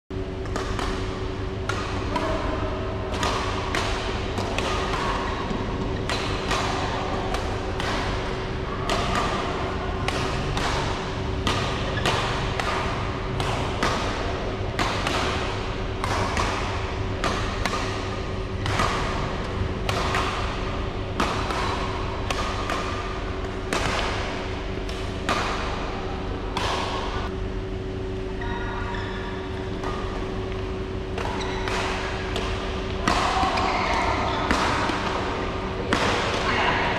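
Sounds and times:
steady low hum: 0:00.1 - 0:36.9
badminton rackets hitting shuttlecock: 0:00.2 - 0:27.4, 0:28.0 - 0:36.9.

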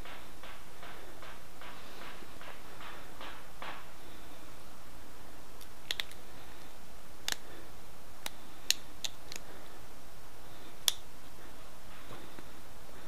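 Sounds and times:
stone flaking clicks: 0:05.6 - 0:07.5, 0:08.2 - 0:09.5, 0:10.8 - 0:11.1.

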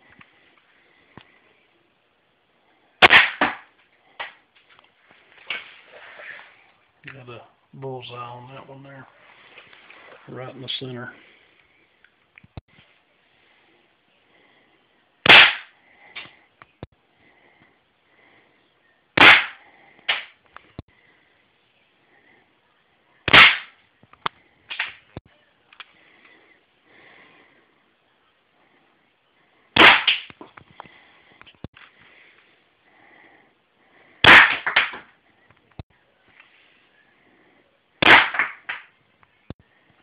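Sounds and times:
airsoft pistol shots: 0:03.0 - 0:03.6, 0:15.2 - 0:15.7, 0:19.2 - 0:20.3, 0:23.3 - 0:23.7, 0:29.8 - 0:30.3, 0:34.2 - 0:35.0, 0:38.0 - 0:38.8.

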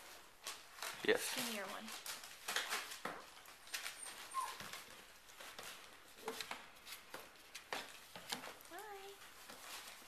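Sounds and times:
soft clicks and rustles: 0:00.0 - 0:10.0
puppy squeaking: 0:03.7 - 0:05.0.

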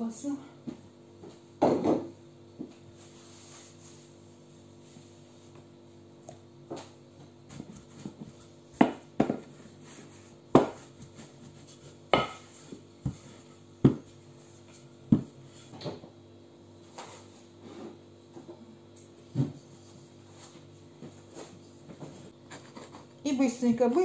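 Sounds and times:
steady low hum: 0:00.0 - 0:24.0
rolling pin knocking on tabletop: 0:08.0 - 0:09.6, 0:10.5 - 0:11.2.

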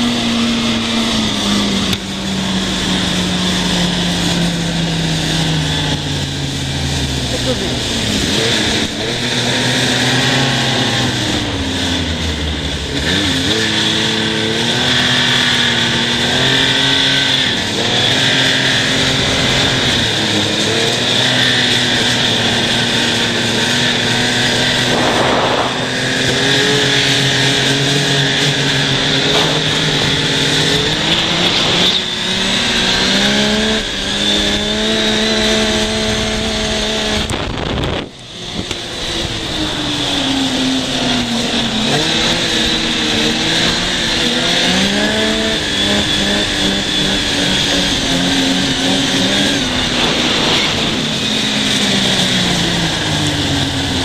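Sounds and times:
snowmobile engine revving: 0:00.0 - 0:54.0
steady rushing noise: 0:11.0 - 0:54.0.

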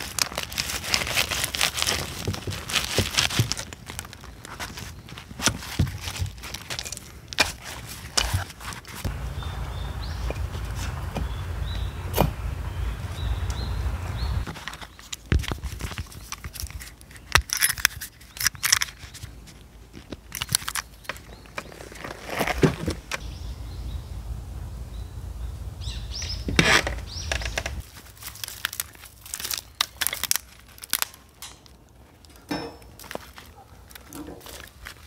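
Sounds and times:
low rumble: 0:09.1 - 0:14.4, 0:23.2 - 0:27.8
metal lantern clinking: 0:32.5 - 0:33.1.

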